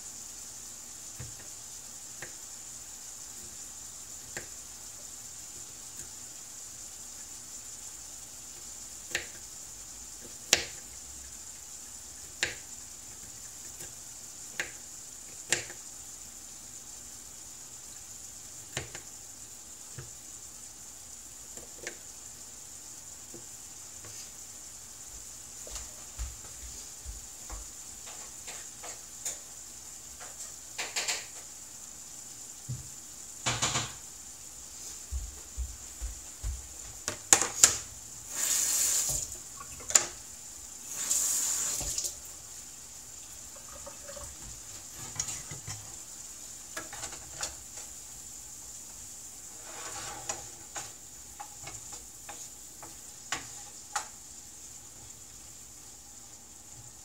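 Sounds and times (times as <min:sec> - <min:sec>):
food sizzling in a frying pan: 0:00.0 - 0:57.0
tap running: 0:35.1 - 0:40.2, 0:41.0 - 0:42.2
wooden spatula stirring pan: 0:43.4 - 0:46.1.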